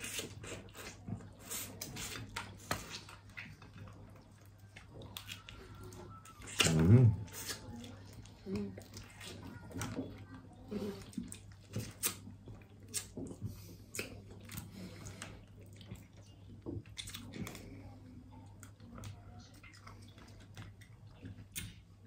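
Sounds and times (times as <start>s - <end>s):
chewing and sucking: 0.0s - 10.0s, 10.7s - 17.8s.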